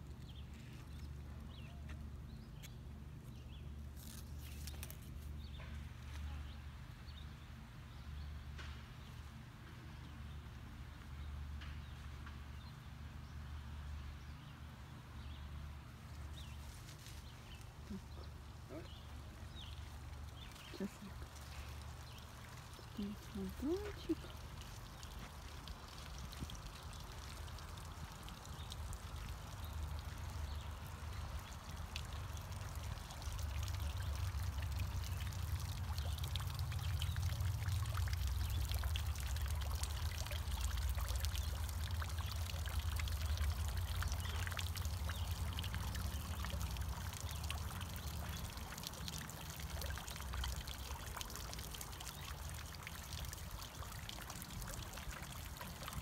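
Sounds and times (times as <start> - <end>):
fountain water splashing: 14.9 - 56.0.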